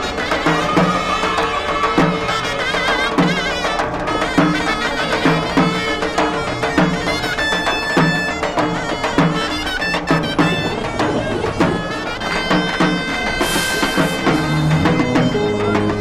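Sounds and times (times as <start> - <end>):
drum beating: 0.0 - 16.0
shrill reed pipe melody: 0.0 - 16.0
steady drone: 13.4 - 16.0.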